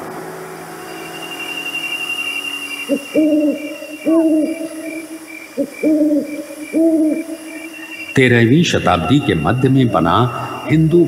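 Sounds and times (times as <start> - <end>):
steady high chirring: 0.2 - 11.0
owl hooting: 0.8 - 11.0.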